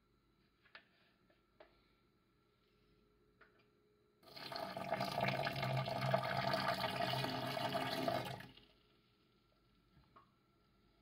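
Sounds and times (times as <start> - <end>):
water pouring: 4.2 - 8.6.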